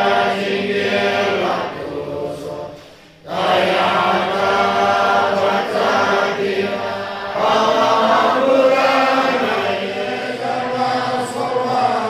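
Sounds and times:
congregation chanting prayers: 0.0 - 12.0.

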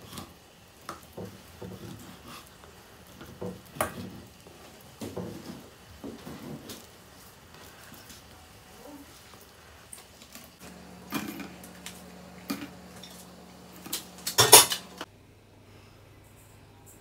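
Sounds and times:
utensils clattering: 10.4 - 15.1
utensils clinking on cookware: 11.0 - 15.1.

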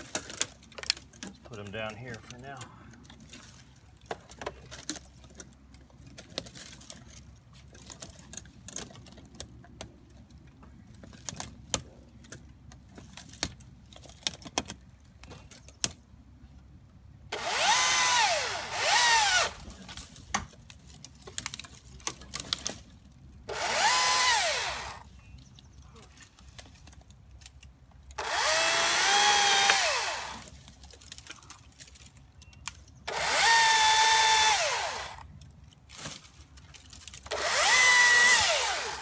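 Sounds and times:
electric chainsaw motor whine: 17.3 - 19.6, 23.5 - 25.0, 28.2 - 30.5, 33.1 - 35.2, 37.3 - 39.0.

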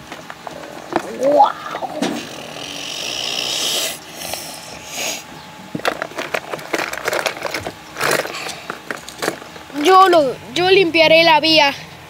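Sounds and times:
rustling and scraping handling: 0.0 - 2.3, 5.3 - 10.8.

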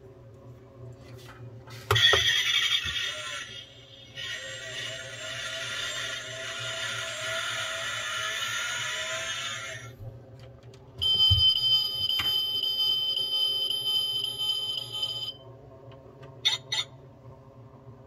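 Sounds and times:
toy engine rev sound: 2.0 - 9.9.

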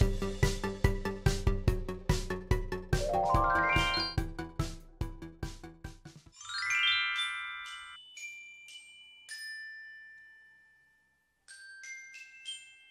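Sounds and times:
background tune: 3.0 - 4.2
chime notes jingle: 3.0 - 4.2, 6.4 - 9.2.

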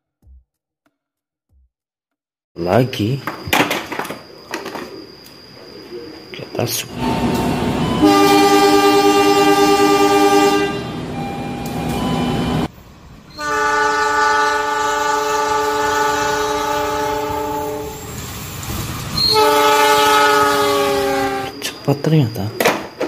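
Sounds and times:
train horn blasts: 7.0 - 12.7, 13.3 - 18.0, 19.2 - 21.6.

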